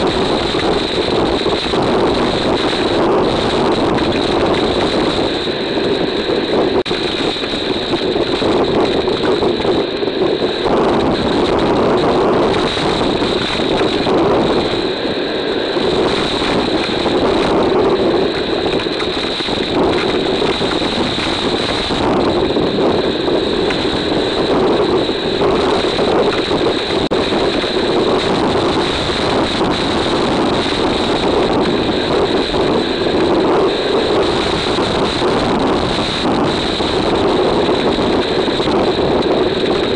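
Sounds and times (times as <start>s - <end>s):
wind and driving rain roaring: 0.0s - 39.9s.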